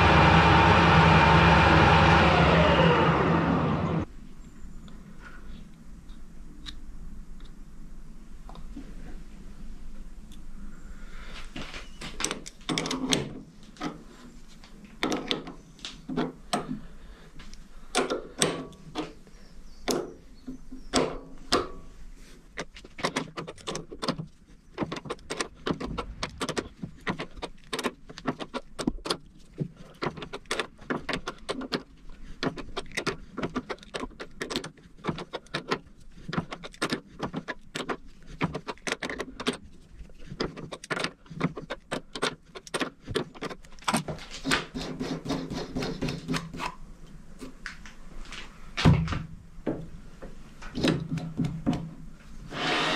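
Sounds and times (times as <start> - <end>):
metallic clicks and knocks: 22.6 - 39.7.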